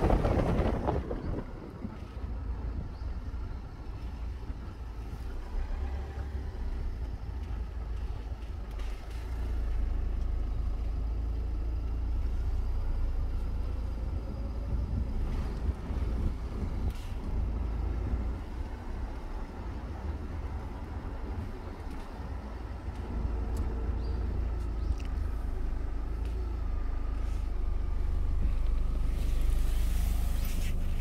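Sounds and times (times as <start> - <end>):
car cabin rumble: 0.0 - 5.2, 13.8 - 31.0.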